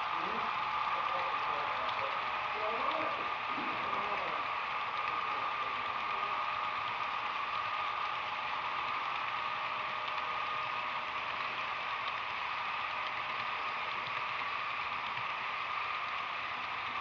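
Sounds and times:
model train wheels clattering: 0:00.0 - 0:17.0
steady whine: 0:00.0 - 0:17.0.

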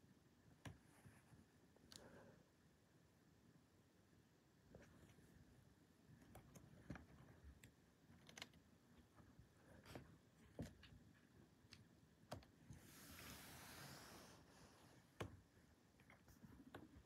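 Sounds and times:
soft hissy rustle: 0:12.7 - 0:15.2.

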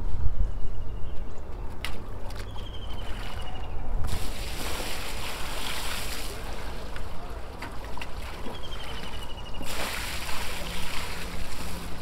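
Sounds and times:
water splashing from bucket: 0:04.1 - 0:07.0, 0:09.6 - 0:12.0.

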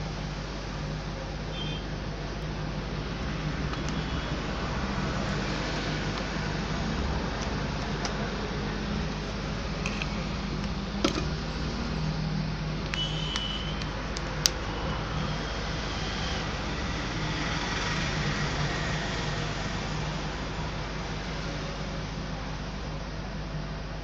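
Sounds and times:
phone cover snapping into place: 0:09.9 - 0:11.4.

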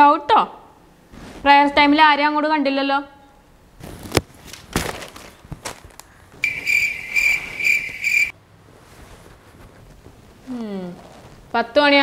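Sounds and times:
cricket chirping: 0:06.4 - 0:08.3.

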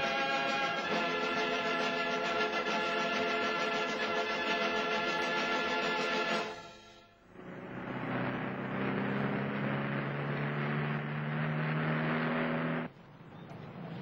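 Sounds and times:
background music: 0:00.0 - 0:09.0
vehicle engine humming: 0:07.2 - 0:14.0.

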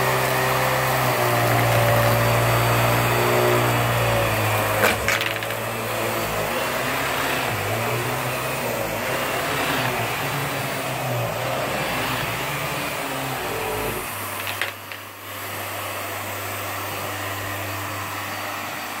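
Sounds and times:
vacuum cleaner running on carpet: 0:00.0 - 0:19.0.

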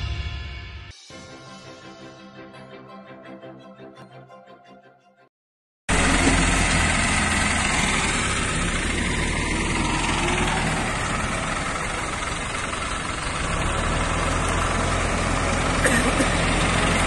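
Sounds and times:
diesel engine rumbling: 0:05.9 - 0:17.0.

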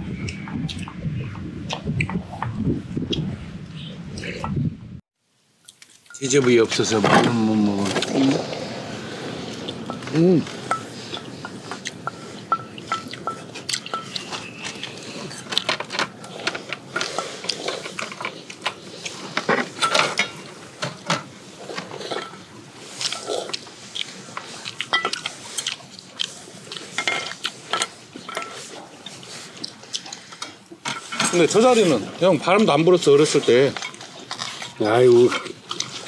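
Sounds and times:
chewing: 0:07.8 - 0:30.8, 0:31.8 - 0:36.0
chopsticks clinking against bowls: 0:09.7 - 0:18.8, 0:22.0 - 0:31.8.

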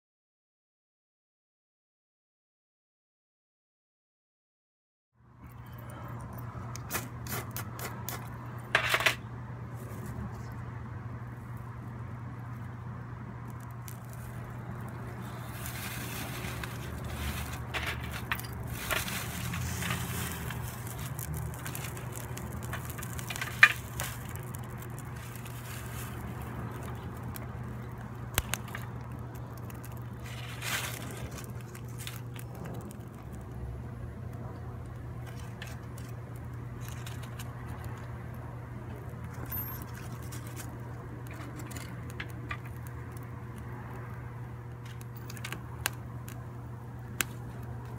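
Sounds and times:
steady low hum: 0:05.3 - 0:47.9
small fire crackling: 0:11.2 - 0:47.9
dry leaves and twigs rustling: 0:13.4 - 0:33.6, 0:35.0 - 0:43.3.

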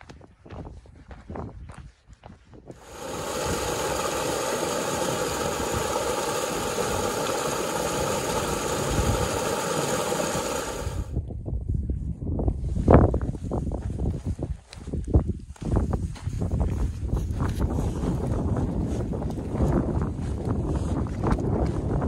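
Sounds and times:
stream splashing over rock: 0:02.8 - 0:11.1.

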